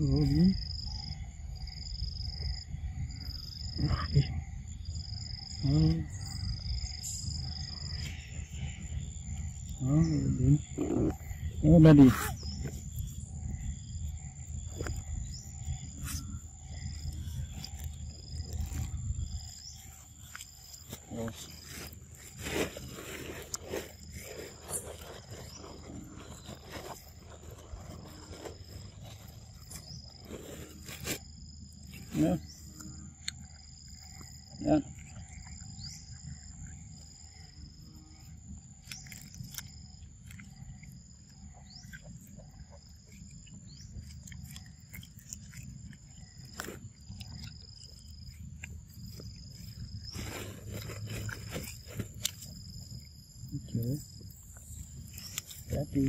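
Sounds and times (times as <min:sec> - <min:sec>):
insect chirring: 0:00.0 - 0:56.0.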